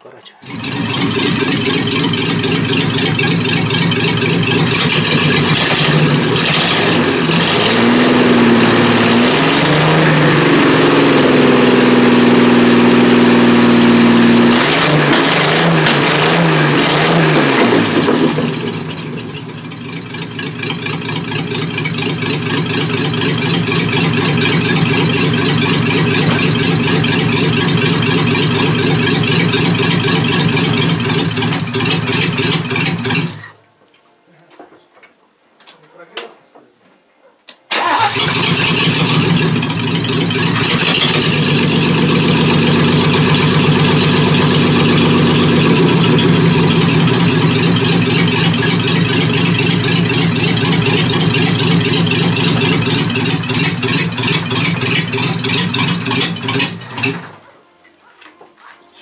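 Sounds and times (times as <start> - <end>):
unmuffled car engine revving: 0.4 - 19.0, 23.0 - 33.4.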